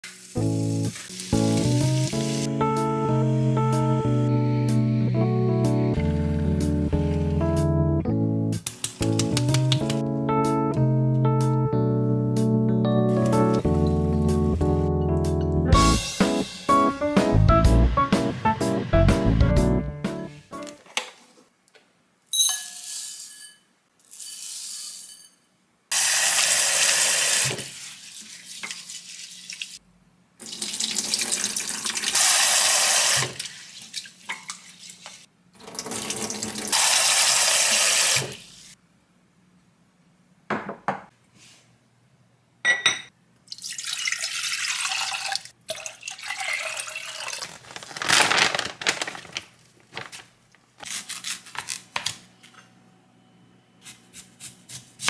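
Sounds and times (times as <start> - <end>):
water poured into sink: 30.4 - 38.4, 43.5 - 48.4
tap water running into bowl: 43.5 - 47.6.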